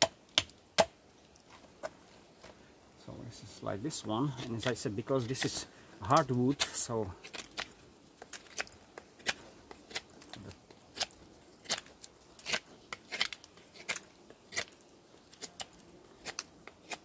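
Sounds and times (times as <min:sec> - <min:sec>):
knife carving wood: 0:00.0 - 0:02.0, 0:04.3 - 0:17.0.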